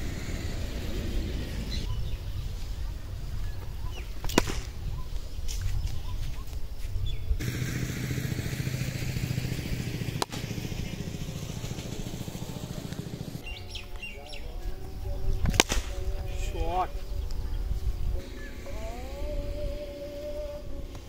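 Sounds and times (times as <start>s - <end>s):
voices calling out: 0.0s - 5.3s, 7.4s - 21.0s
steady low hum: 0.0s - 6.1s, 6.9s - 21.0s
cricket bat striking ball: 4.2s - 4.8s, 15.4s - 15.9s.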